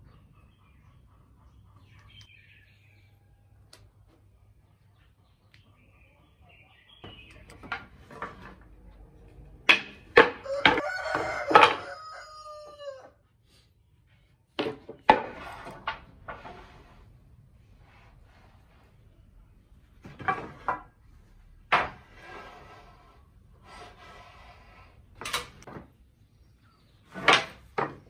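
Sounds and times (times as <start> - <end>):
wooden strips clacking: 7.0 - 12.0, 14.6 - 16.9, 19.9 - 21.0, 21.7 - 22.4, 27.0 - 28.0.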